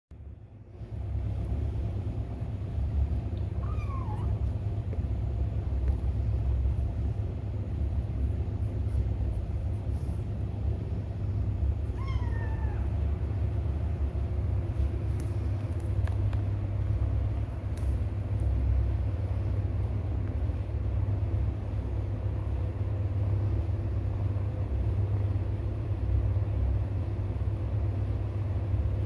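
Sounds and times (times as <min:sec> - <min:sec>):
steady low rumble: 0:00.1 - 0:29.0
kitten mewing: 0:03.4 - 0:04.6, 0:11.8 - 0:13.0.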